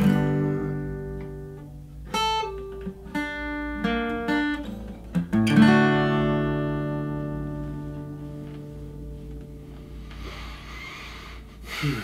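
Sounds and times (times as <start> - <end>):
acoustic guitar chords: 0.0 - 12.0.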